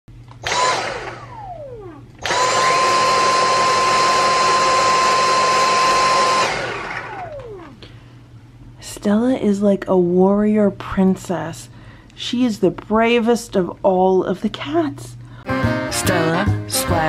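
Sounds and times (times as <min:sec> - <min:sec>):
vacuum motor whine: 0:00.3 - 0:08.0.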